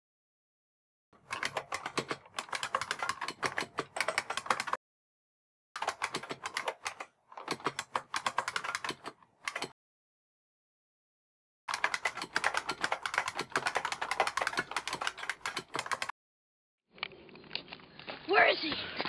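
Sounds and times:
rapid keyboard typing clicks: 0:01.2 - 0:04.8, 0:05.8 - 0:09.8, 0:11.7 - 0:16.1.

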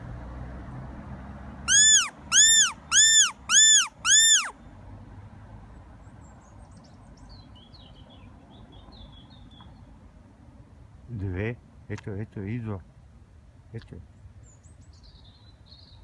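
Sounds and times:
predator call whistle squealing: 0:01.7 - 0:04.6.

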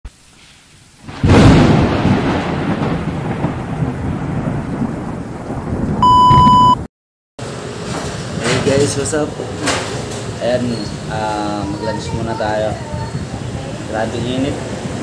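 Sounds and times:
deep rumbling boom: 0:01.1 - 0:06.8
high electronic beep: 0:06.0 - 0:06.8.

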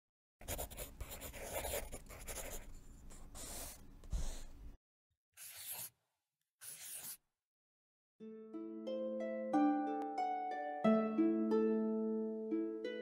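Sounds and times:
pencil scratching on paper: 0:00.4 - 0:04.6, 0:05.4 - 0:06.0, 0:06.6 - 0:07.3.

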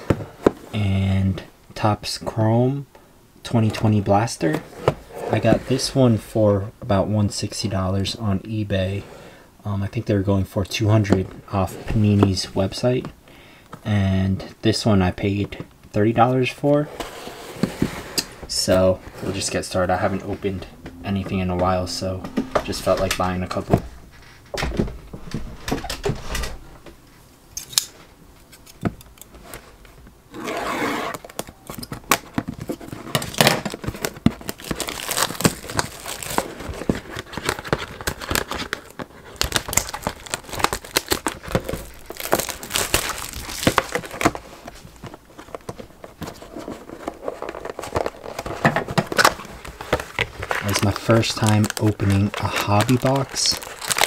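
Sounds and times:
plastic shrink wrap crackling: 0:31.1 - 0:45.7, 0:49.1 - 0:54.0.

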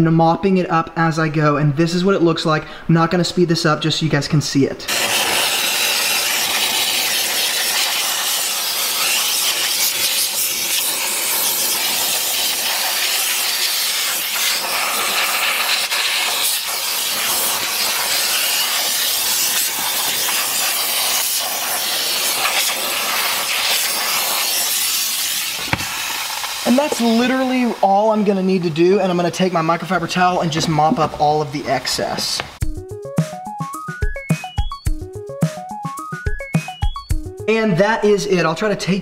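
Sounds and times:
steam cleaner hissing: 0:04.9 - 0:31.4.

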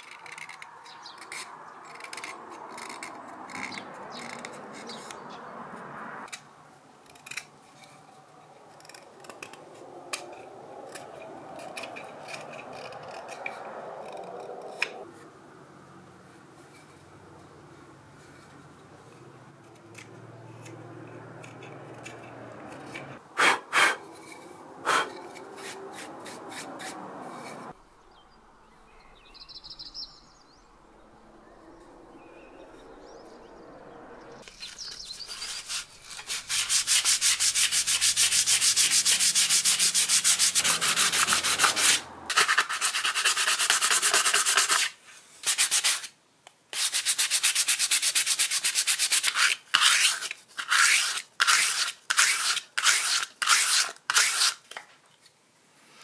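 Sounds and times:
sandpaper rubbing wood: 0:23.1 - 0:27.7, 0:34.6 - 0:54.6.

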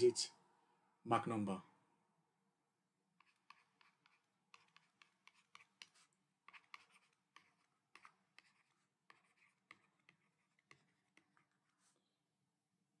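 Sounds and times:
stylus scratching on tablet: 0:03.2 - 0:12.1.

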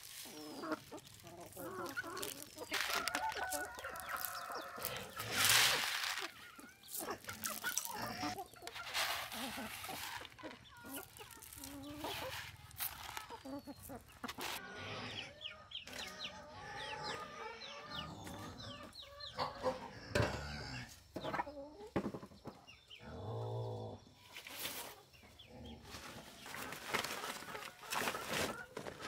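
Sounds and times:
rustling: 0:00.0 - 0:14.6, 0:25.9 - 0:29.0
chicks peeping: 0:00.0 - 0:19.9
chicken drawn-out call: 0:00.0 - 0:20.9
hens clucking: 0:00.0 - 0:23.1, 0:24.0 - 0:29.0.

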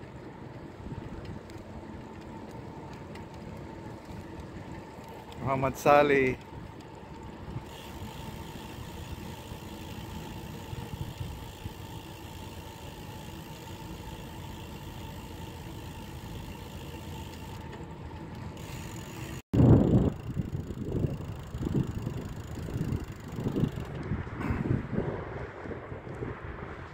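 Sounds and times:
wind buffeting microphone: 0:00.0 - 0:12.7, 0:19.6 - 0:26.9
bicycle road noise: 0:00.0 - 0:26.9.

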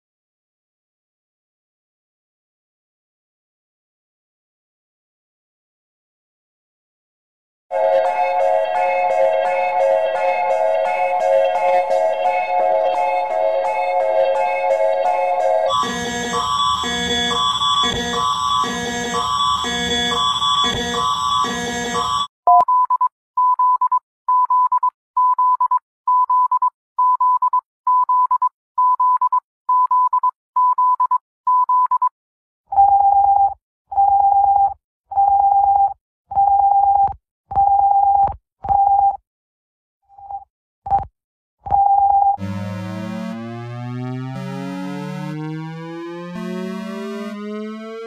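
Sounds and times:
synthesized alert melody: 0:07.7 - 0:22.3, 0:42.4 - 0:48.0
longer lower alarm beeps: 0:15.7 - 0:22.8.

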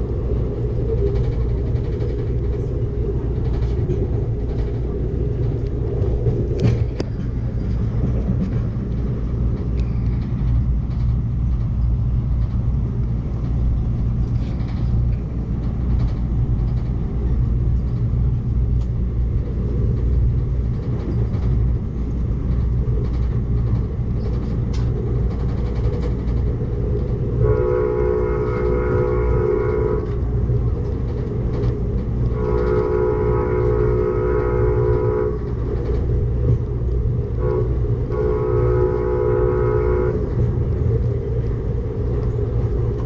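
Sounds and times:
light clicks of rails: 0:00.0 - 0:43.0
train wheels rumbling on rail: 0:00.0 - 0:43.0
train horn chord: 0:27.4 - 0:30.2, 0:32.3 - 0:35.5, 0:37.4 - 0:40.5.

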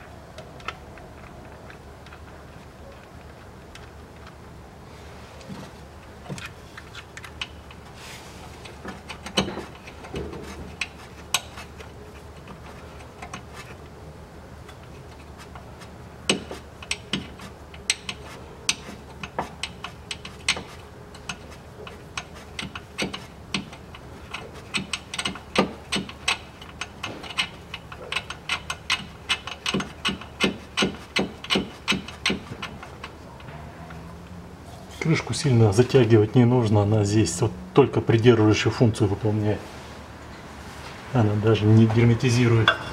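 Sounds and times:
ratchet wrench clicking: 0:16.3 - 0:32.9.

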